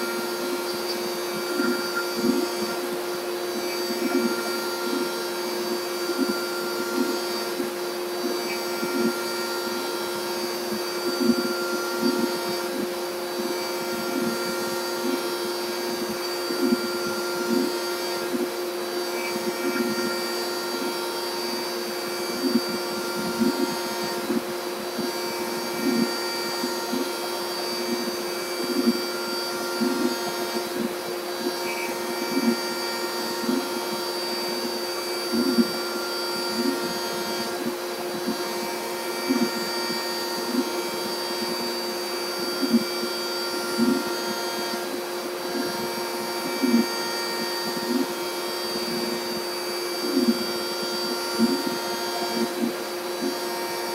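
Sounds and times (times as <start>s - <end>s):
cnc router whine: 0.0s - 53.9s
dust collector air rush: 0.0s - 53.9s.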